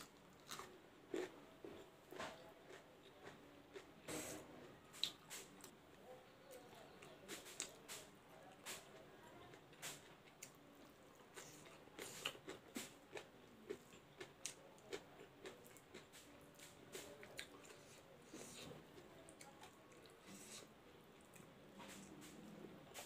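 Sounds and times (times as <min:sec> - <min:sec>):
person chewing: 0:00.0 - 0:05.7, 0:10.2 - 0:22.1.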